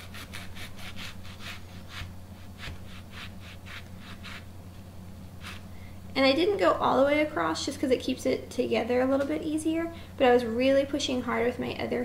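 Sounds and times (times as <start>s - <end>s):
knife sawing through onion: 0.0s - 4.5s, 5.4s - 5.7s.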